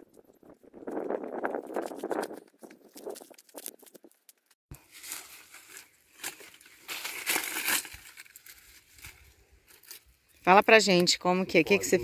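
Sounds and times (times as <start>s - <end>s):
dry material crinkling: 1.6s - 10.4s.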